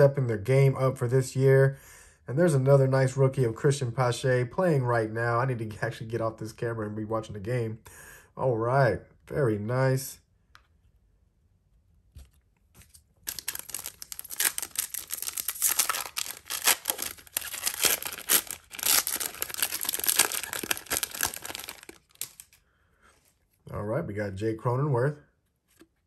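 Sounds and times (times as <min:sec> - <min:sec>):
foil wrapper tearing and crinkling: 0:13.2 - 0:22.6.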